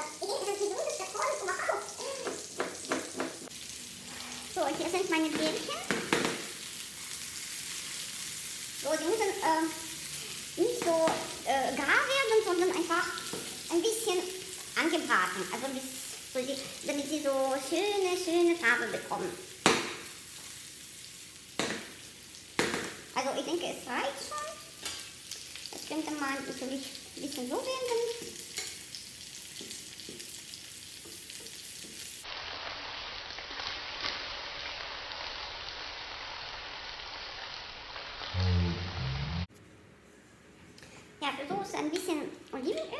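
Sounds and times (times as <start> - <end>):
food sizzling in oil: 0.0 - 39.5
balls rolling in pan: 0.2 - 9.7, 18.7 - 23.2.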